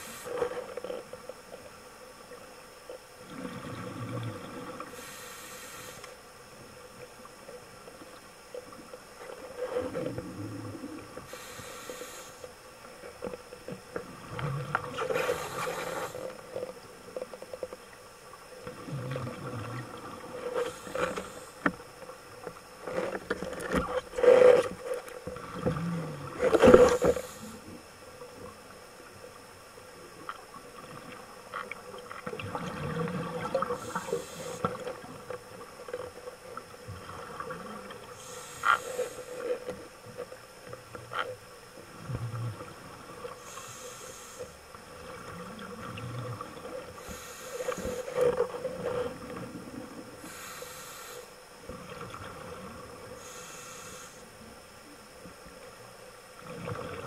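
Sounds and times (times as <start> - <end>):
steady hum: 0.0 - 57.0
underwater bubbling: 0.0 - 57.0
scuba diver breathing hiss: 5.0 - 6.2, 11.3 - 12.5, 15.0 - 16.3, 20.6 - 21.6, 26.7 - 27.6, 33.7 - 34.7, 38.2 - 39.6, 43.4 - 44.6, 47.0 - 48.2, 50.2 - 51.3, 53.2 - 54.4.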